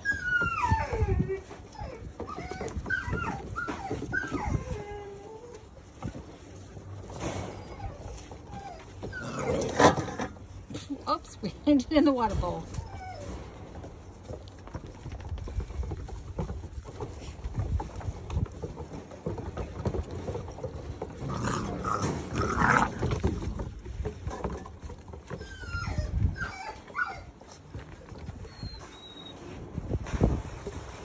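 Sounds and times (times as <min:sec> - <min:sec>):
puppy whimpers: 0:00.0 - 0:05.8, 0:07.4 - 0:10.3, 0:12.7 - 0:13.6, 0:25.2 - 0:27.5, 0:28.2 - 0:29.6
puppies growling and yapping: 0:00.0 - 0:11.0, 0:12.7 - 0:29.7.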